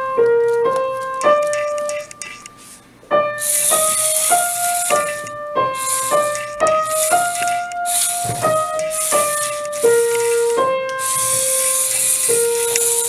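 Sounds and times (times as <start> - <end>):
piano melody: 3.1 - 13.0
hissing percussion: 3.4 - 13.0.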